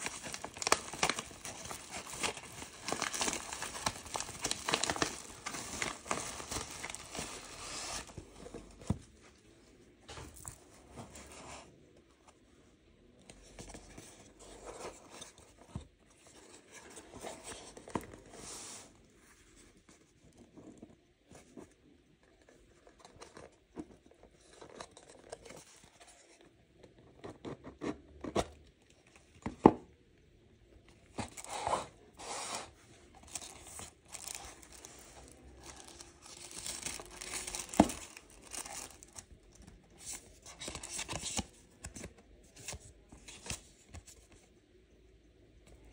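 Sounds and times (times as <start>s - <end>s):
wrapping paper rustling: 0.0s - 9.2s, 31.2s - 41.5s.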